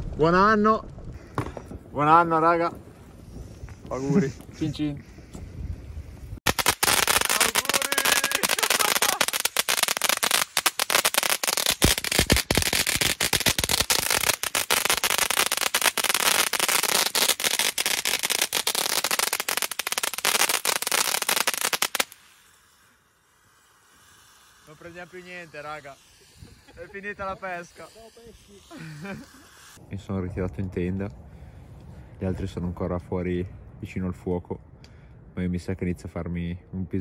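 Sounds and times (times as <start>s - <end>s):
fireworks crackling: 0.0s - 4.7s, 6.1s - 29.9s
firework pops: 0.8s - 2.0s, 6.4s - 18.1s.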